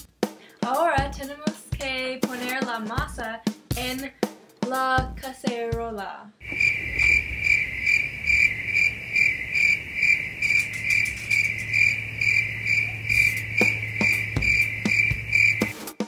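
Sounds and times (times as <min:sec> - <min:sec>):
low hum: 0:06.4 - 0:15.3
cricket chirping: 0:06.4 - 0:16.0.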